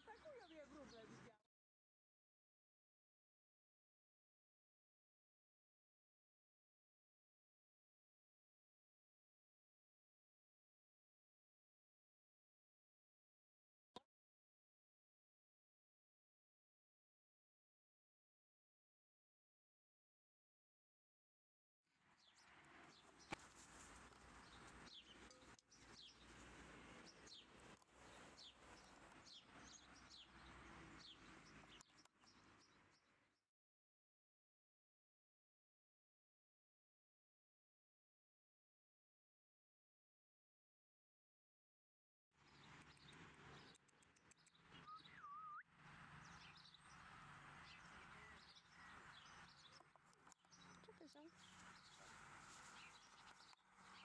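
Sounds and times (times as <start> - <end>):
faint bird chirps: 42.6 - 45.7.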